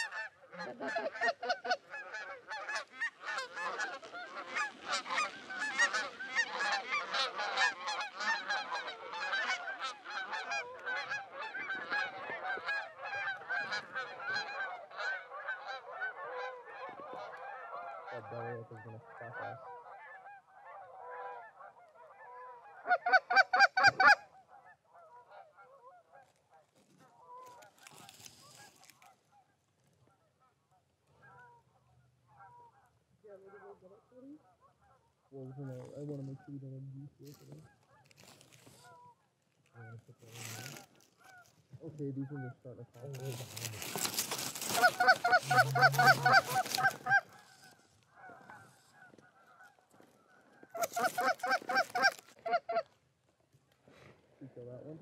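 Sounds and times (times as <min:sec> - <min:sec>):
geese honking: 0:00.0 - 0:53.0
rapid honks close by: 0:44.7 - 0:47.5.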